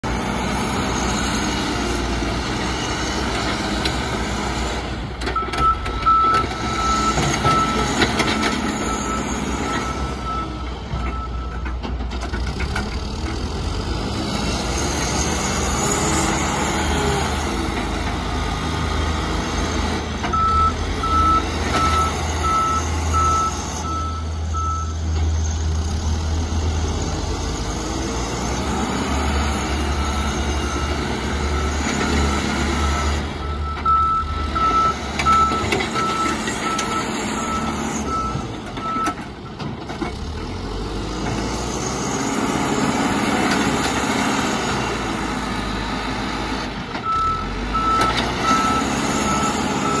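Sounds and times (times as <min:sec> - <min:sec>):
diesel engine under load: 0:00.0 - 0:50.0
reversing alarm beeping: 0:05.4 - 0:08.0, 0:20.3 - 0:25.0, 0:30.0 - 0:39.2, 0:47.0 - 0:50.0.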